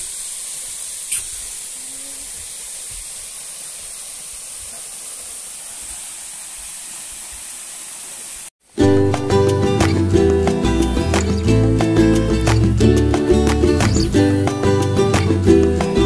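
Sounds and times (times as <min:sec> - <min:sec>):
waterfall rushing hiss: 0:00.0 - 0:08.8.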